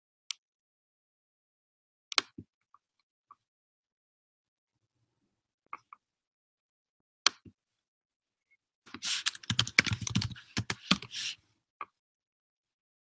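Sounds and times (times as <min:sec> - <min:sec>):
keyboard typing: 0:09.0 - 0:11.3.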